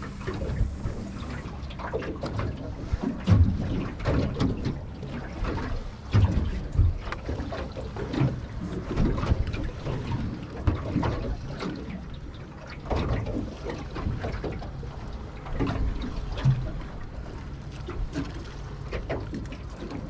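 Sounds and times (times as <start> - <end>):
wind buffeting microphone: 0.0 - 7.4
water slapping boat hull: 0.0 - 20.0.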